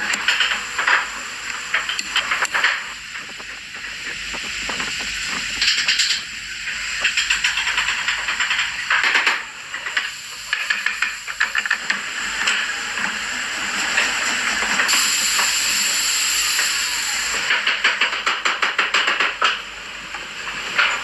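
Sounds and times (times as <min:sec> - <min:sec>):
steady hiss: 0:00.0 - 0:18.0
bright high hiss: 0:14.9 - 0:17.5.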